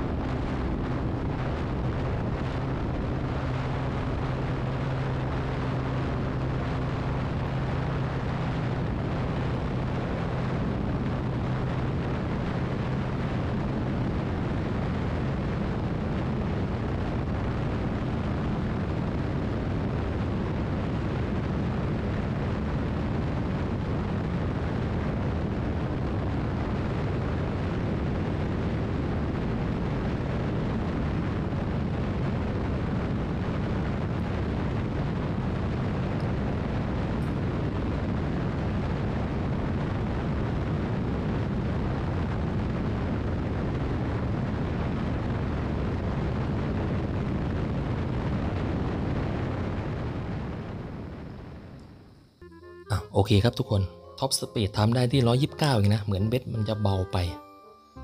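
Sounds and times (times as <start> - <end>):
scooter engine drone: 0.0 - 43.1
wind and road noise: 0.0 - 56.5.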